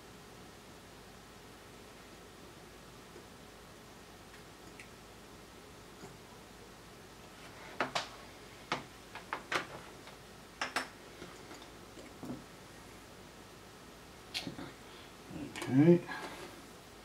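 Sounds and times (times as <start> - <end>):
tools clicking and tapping: 10.6 - 11.7.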